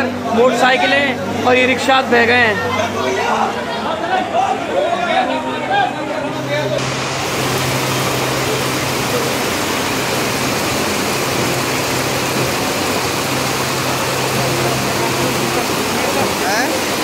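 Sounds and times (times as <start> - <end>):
low hum: 6.8 - 16.1
floodwater rushing: 6.8 - 17.0.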